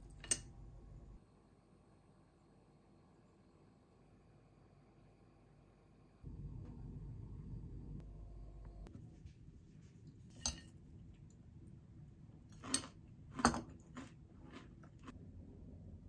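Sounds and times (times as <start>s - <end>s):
metal spoon clinking on glass: 0.1s - 0.5s, 10.4s - 10.7s.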